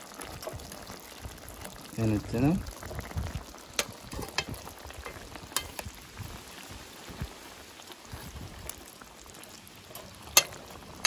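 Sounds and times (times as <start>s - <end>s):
sauce bubbling in a pan: 0.0s - 11.0s
fork clicking against a pan: 10.3s - 10.6s.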